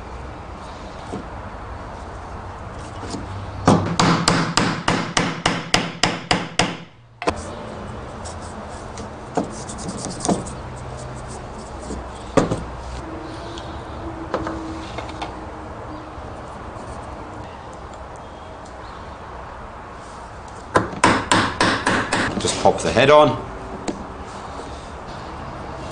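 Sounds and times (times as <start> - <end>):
hammer knocking wood: 3.6 - 6.9, 12.4 - 12.7, 20.7 - 22.4.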